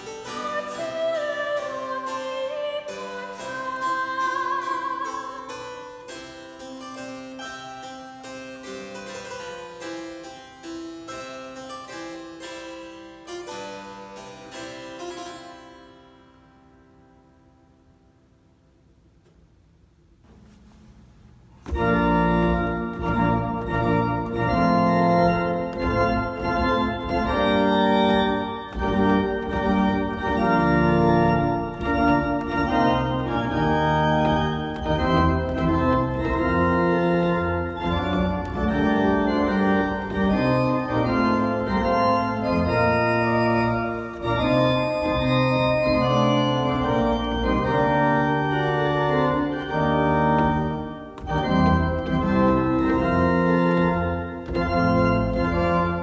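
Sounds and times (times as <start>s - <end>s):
church organ chords: 21.6s - 56.0s.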